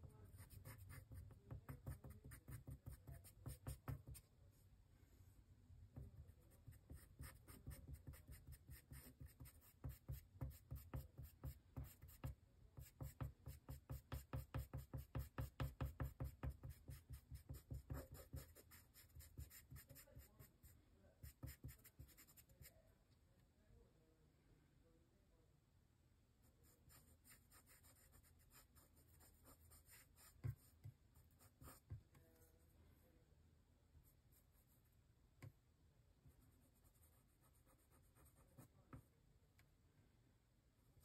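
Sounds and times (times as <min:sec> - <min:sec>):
pencil scratching on paper: 0:00.0 - 0:04.2, 0:06.0 - 0:22.7, 0:26.7 - 0:32.6, 0:36.3 - 0:39.1.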